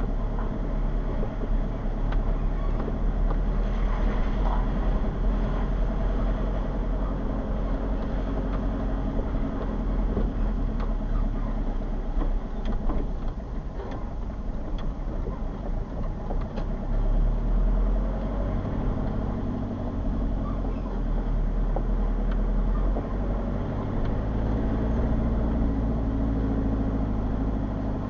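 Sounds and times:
car engine and tyre noise: 0.0 - 28.0
light clicks and knocks: 7.8 - 17.1.

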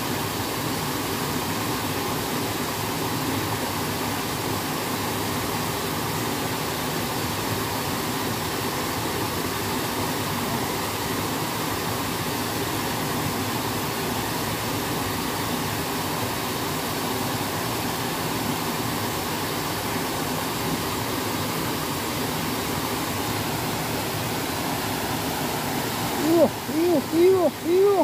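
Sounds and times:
water rushing over weir: 0.0 - 28.0.

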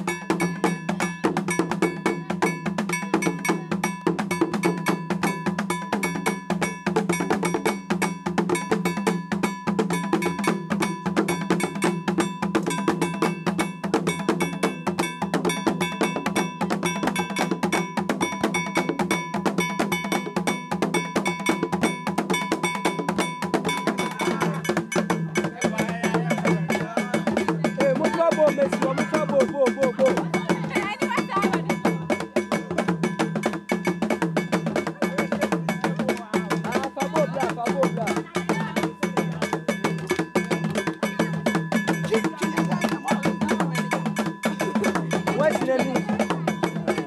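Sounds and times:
bell ringing steadily: 0.0 - 47.0
hand drums playing fast rhythm: 0.0 - 47.0.

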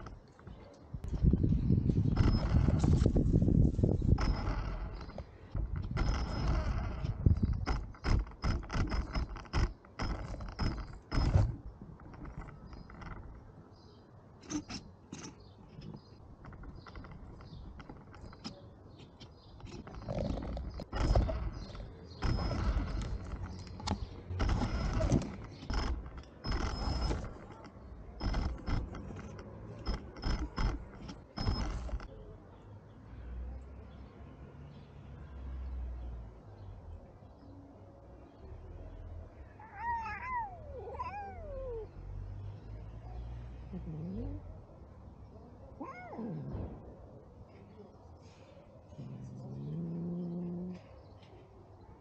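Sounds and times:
toy car motor whirring: 20.6 - 27.6, 28.2 - 32.1.

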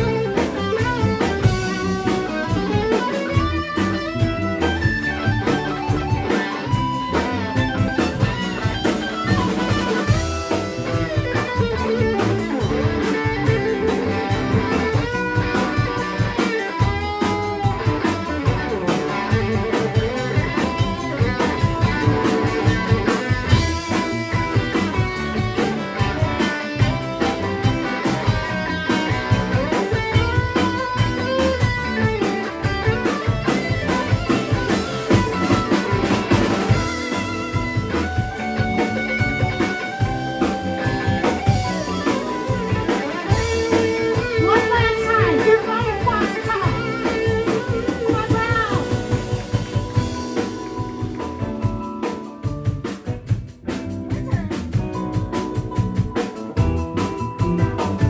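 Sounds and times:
bent lead guitar notes: 0.0 - 58.0
live blues band playing: 0.0 - 58.0.

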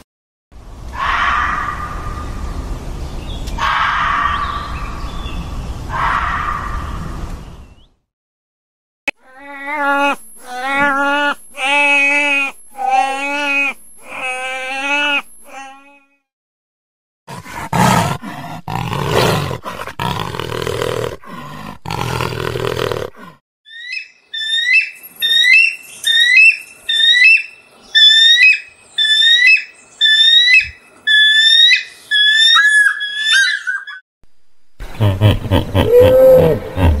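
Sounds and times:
jaguar growling: 17.3 - 23.4
eagle high chirping calls: 23.7 - 34.0.

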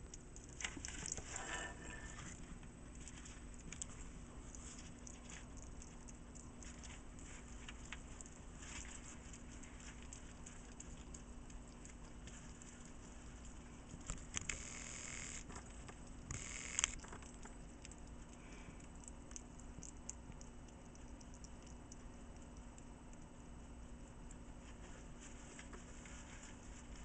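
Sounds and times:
hedgehog wet mouth clicks: 17.0 - 23.4.

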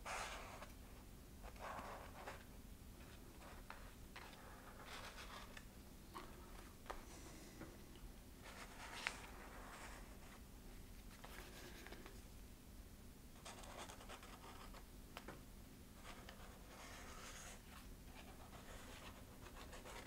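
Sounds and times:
marker scratching on foam: 16.0 - 20.0.

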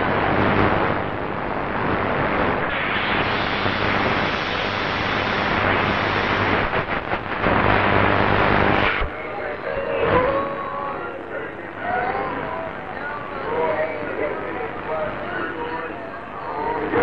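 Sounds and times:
shortwave radio static: 0.0 - 17.0.

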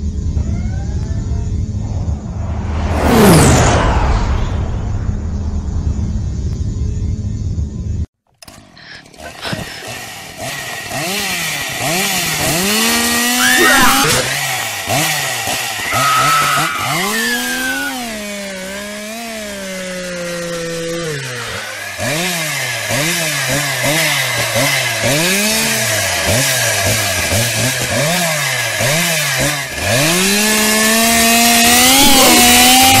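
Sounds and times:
chainsaw engine revving: 8.4 - 33.0.

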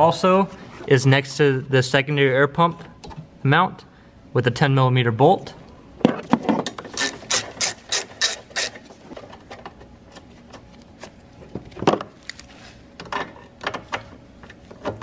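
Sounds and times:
ratchet wrench clicking: 7.0 - 8.8.

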